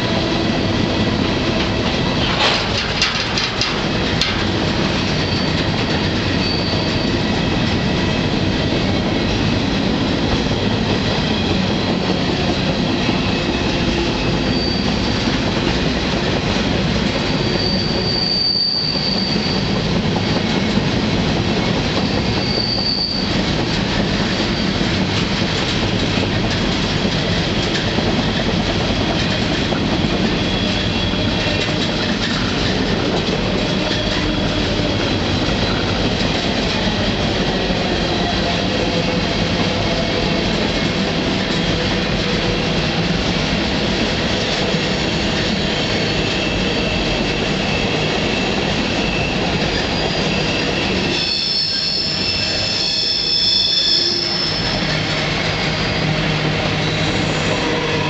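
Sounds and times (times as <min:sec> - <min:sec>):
train wheels rumbling on rails: 0:00.0 - 0:58.0
high wheel squeals: 0:05.2 - 0:07.4, 0:13.2 - 0:15.2, 0:17.3 - 0:20.4, 0:22.0 - 0:23.4, 0:45.1 - 0:58.0.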